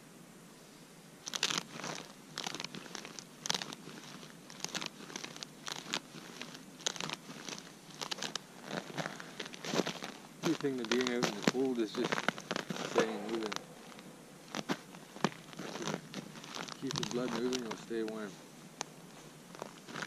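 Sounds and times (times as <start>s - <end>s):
boots crunching on frozen snow: 1.2s - 18.5s, 19.1s - 20.0s.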